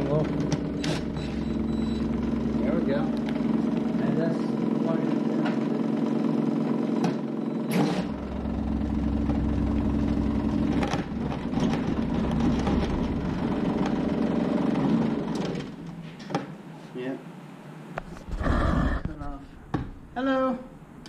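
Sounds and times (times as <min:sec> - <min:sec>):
heat pump unit humming: 0:00.0 - 0:21.0
deeper drone: 0:08.1 - 0:13.9.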